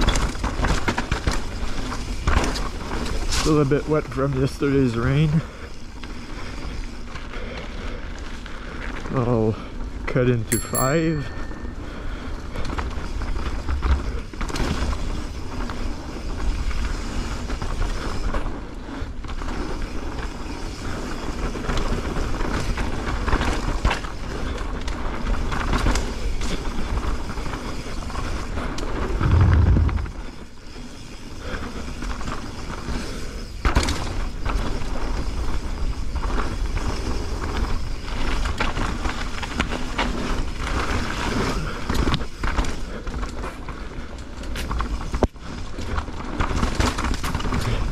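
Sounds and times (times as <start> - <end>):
tyres rolling over gravel: 0.0 - 9.5
bike clicks and rattles: 0.0 - 47.9
loud low rumble: 29.2 - 30.2.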